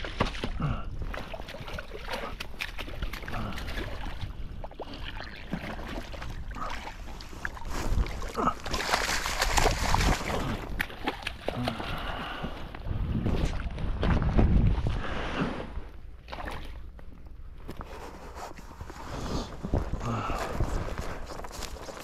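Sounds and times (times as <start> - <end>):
water noise: 0.0 - 22.0
wind buffeting microphone: 9.3 - 10.9, 12.7 - 15.8.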